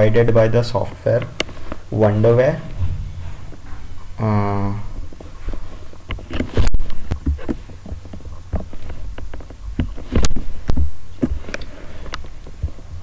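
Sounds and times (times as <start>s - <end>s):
low electrical hum: 0.0s - 13.0s
small knocks and thumps: 4.9s - 13.0s.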